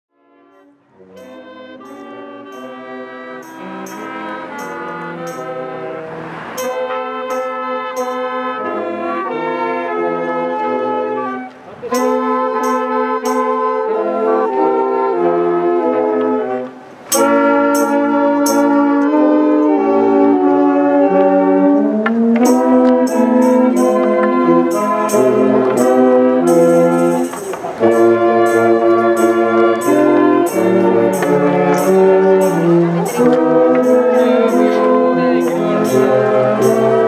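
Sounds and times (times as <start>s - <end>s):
brass band playing: 0.2s - 37.0s.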